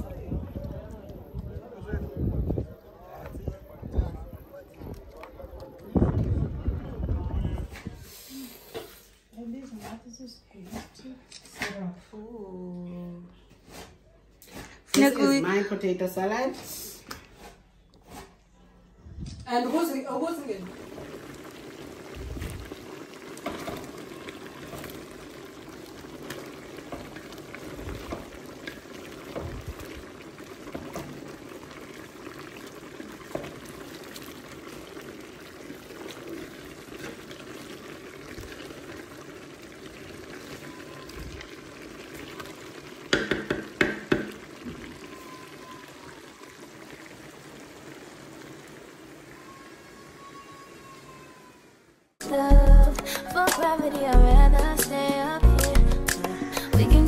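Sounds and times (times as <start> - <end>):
broth simmering and bubbling: 0.0 - 54.7
spoon knocking pot: 43.1 - 44.4.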